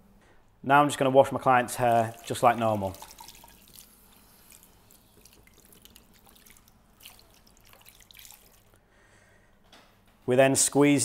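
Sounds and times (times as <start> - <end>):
water drips: 1.7 - 8.8.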